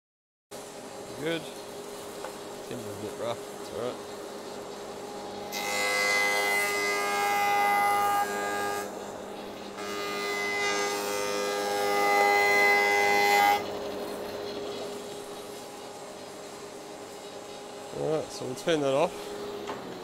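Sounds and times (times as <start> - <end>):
planer cutting wood board: 9.7 - 15.6.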